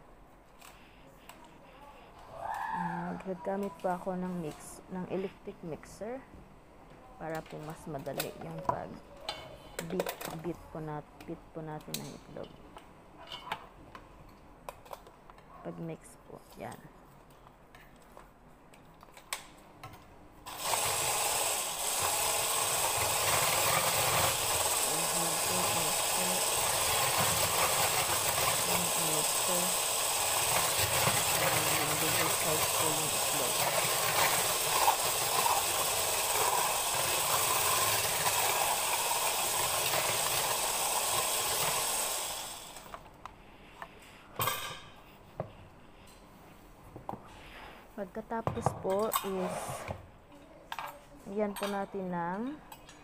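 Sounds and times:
electric mixer whisking: 20.5s - 42.9s.

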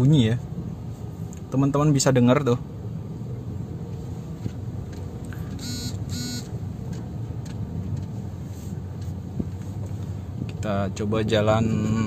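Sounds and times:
tyres and engine rumbling: 0.0s - 12.0s
short beeps: 5.6s - 6.5s.

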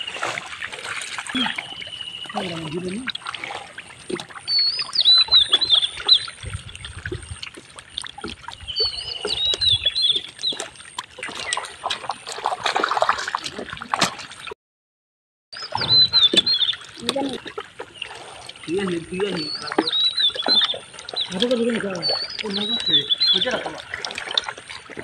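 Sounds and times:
hands splashing in water and mud: 0.0s - 14.5s
bird twittering: 4.5s - 6.4s, 15.6s - 17.3s, 19.3s - 23.7s.

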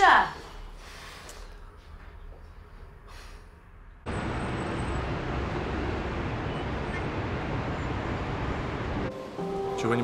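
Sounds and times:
road traffic rumble: 3.0s - 9.4s.

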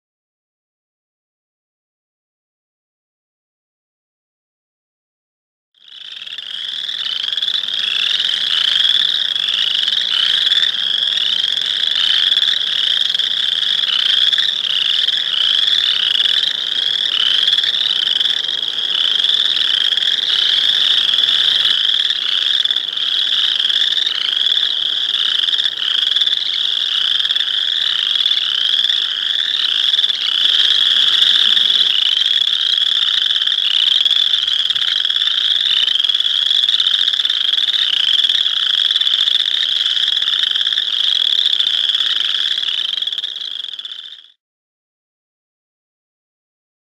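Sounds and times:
frogs trilling in chorus: 5.8s - 44.4s.

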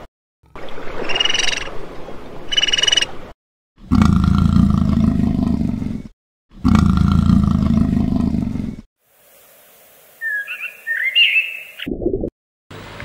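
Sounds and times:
high bird chirps: 1.0s - 1.7s, 2.5s - 3.2s, 10.2s - 11.9s
big cat roaring: 3.8s - 8.9s
faint hiss: 9.0s - 10.7s.

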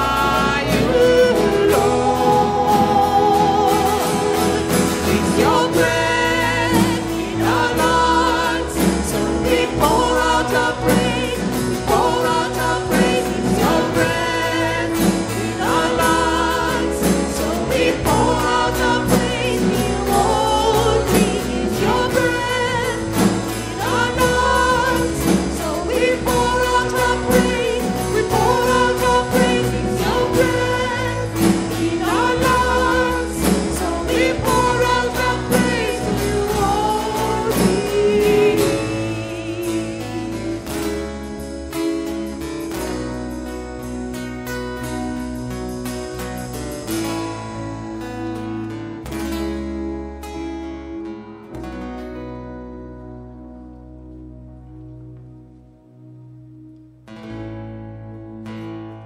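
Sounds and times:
women singing lead: 0.0s - 41.3s
drums: 0.0s - 50.9s
acoustic guitar: 0.0s - 59.0s
keyboard: 0.0s - 59.0s.

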